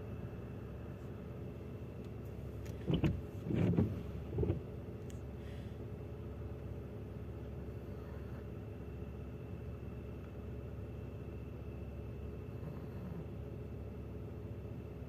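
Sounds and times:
low hum of traffic: 0:00.0 - 0:15.0.

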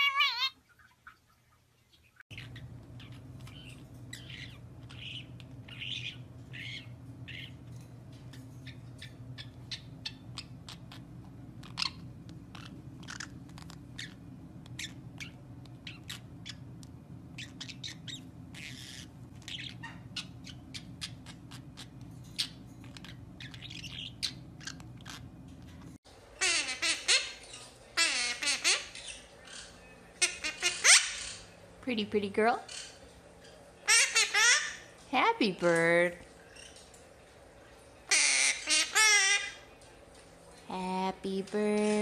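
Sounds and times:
parrots chirping and clicking: 0:00.0 - 0:31.8, 0:32.6 - 0:40.6
low hum: 0:02.3 - 0:26.0.

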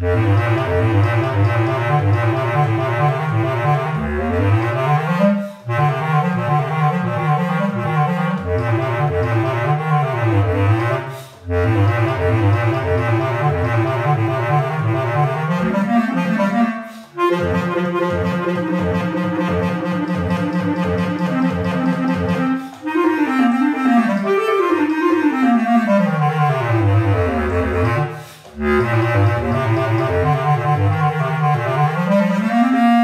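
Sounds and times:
bass clarinet playing rapid runs: 0:00.0 - 0:33.0.

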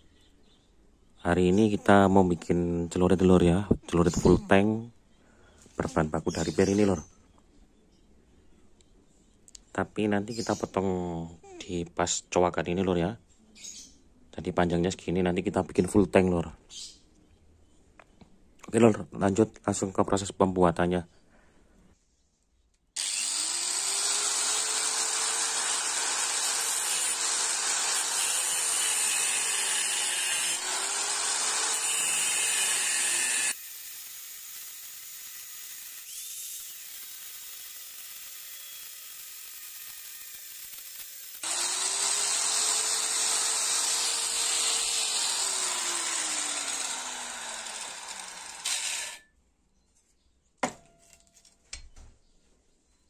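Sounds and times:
angle grinder cutting steel: 0:23.0 - 0:49.3.

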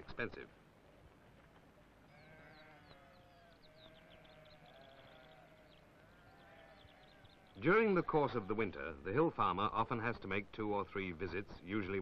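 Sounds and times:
lambs bleating faintly: 0:02.1 - 0:08.6.

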